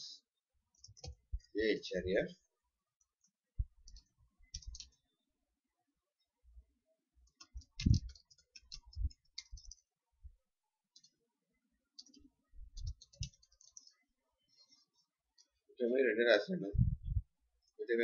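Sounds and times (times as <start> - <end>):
computer keyboard typing: 0.7 - 1.5, 3.2 - 5.0, 7.2 - 9.9, 10.9 - 11.2, 11.9 - 14.0.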